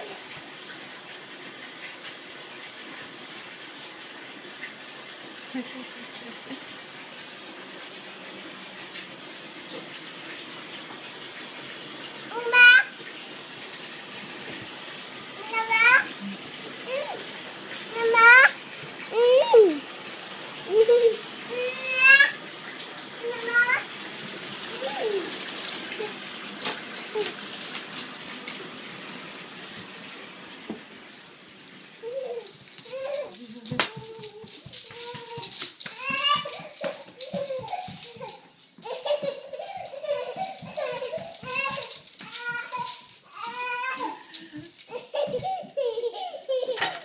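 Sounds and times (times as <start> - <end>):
tap water pouring into tub: 0.0 - 47.0
toddler babbling: 12.3 - 12.9, 15.4 - 16.1, 16.9 - 17.2, 18.0 - 19.8, 20.7 - 22.4, 23.2 - 23.9, 24.8 - 25.3, 32.0 - 47.0
small bells jangling: 26.5 - 47.0.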